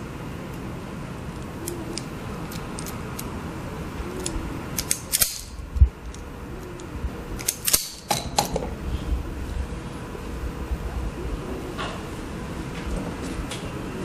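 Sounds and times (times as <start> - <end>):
wire stripper clicking: 4.2 - 8.5.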